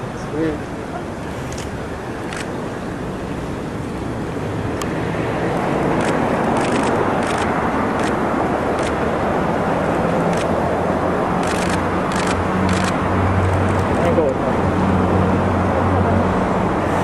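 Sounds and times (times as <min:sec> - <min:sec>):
vehicle rumble: 0:00.0 - 0:17.0
camera shutters clicking: 0:01.5 - 0:02.5, 0:06.0 - 0:08.2, 0:08.8 - 0:09.0, 0:10.3 - 0:10.5, 0:11.4 - 0:13.8.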